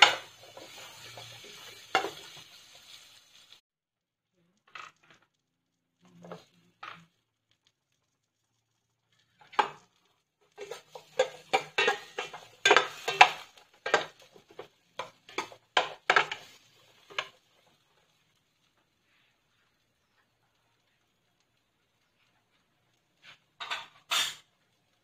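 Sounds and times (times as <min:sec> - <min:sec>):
metal ladle scraping frying pan: 0:10.5 - 0:17.3, 0:23.2 - 0:24.5.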